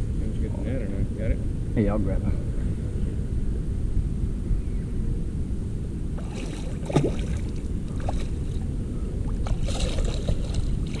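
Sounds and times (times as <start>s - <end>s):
low steady rumble: 0.0s - 11.0s
fish splashing in water: 6.2s - 8.7s, 9.3s - 11.0s.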